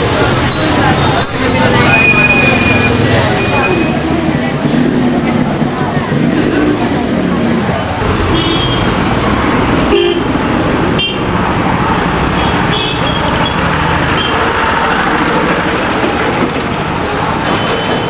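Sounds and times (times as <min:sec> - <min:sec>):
busy street traffic: 0:00.0 - 0:18.0
motorbikes passing: 0:00.0 - 0:18.0
horn toots: 0:09.9 - 0:10.4.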